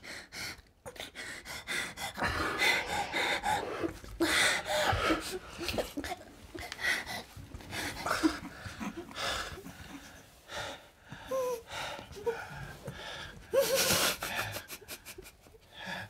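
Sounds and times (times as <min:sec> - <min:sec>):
woman sobbing: 0:02.2 - 0:07.2, 0:07.8 - 0:10.3, 0:13.5 - 0:15.6.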